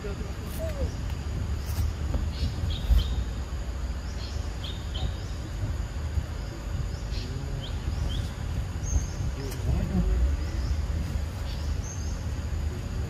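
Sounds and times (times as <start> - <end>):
high insect drone: 0.0 - 13.0
low rumble on microphone: 0.0 - 13.0.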